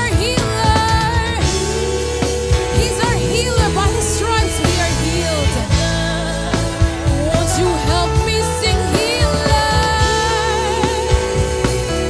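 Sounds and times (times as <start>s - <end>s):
drum kit: 0.0s - 12.0s
keyboard: 0.0s - 12.0s.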